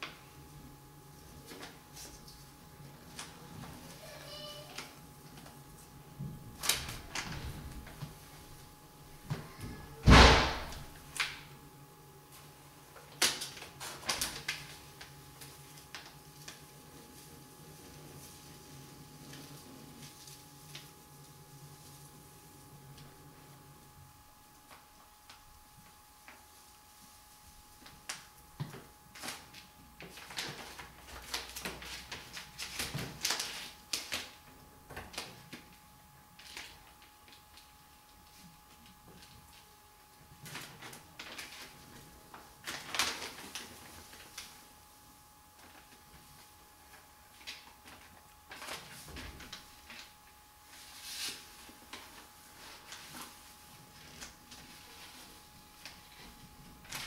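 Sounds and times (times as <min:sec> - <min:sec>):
plastic sheet crackling: 0:01.2 - 0:11.6, 0:12.2 - 0:57.0
transfer tape peeling with rustle: 0:13.1 - 0:17.4, 0:29.1 - 0:34.4, 0:40.4 - 0:44.6.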